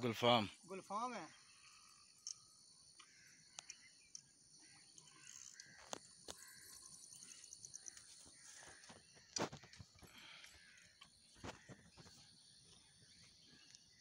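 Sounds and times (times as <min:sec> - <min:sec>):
bird calls: 0:00.0 - 0:14.0
high insect drone: 0:00.0 - 0:14.0.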